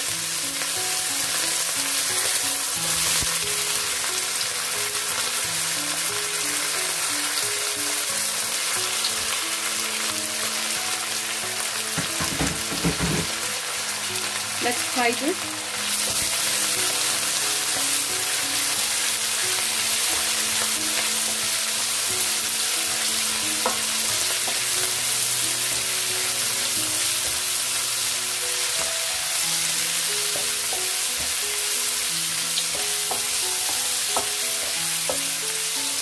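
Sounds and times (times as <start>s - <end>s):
vegetables sizzling in hot oil: 0.0s - 36.0s
spatula tapping pan: 11.9s - 13.4s, 23.6s - 24.8s, 30.2s - 31.4s, 32.7s - 35.4s.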